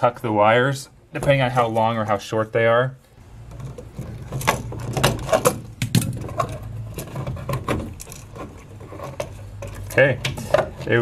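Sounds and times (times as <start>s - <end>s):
outlet and wires clicking and scraping: 3.0s - 11.0s.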